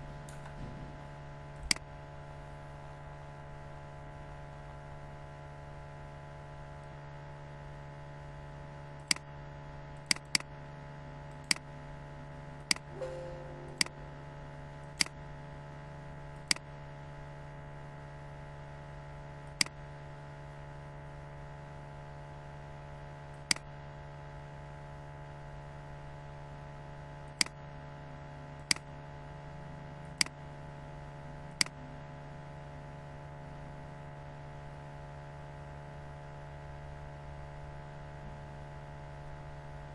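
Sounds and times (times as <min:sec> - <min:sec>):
electrical hum: 0:00.0 - 0:39.9
computer mouse clicks: 0:19.5 - 0:19.8, 0:27.4 - 0:27.6, 0:30.2 - 0:30.4, 0:31.5 - 0:31.8.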